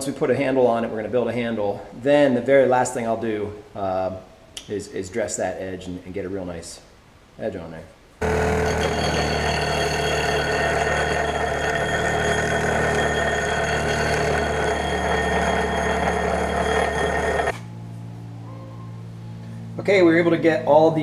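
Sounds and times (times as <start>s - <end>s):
bench grinder grinding steel: 8.2s - 17.6s.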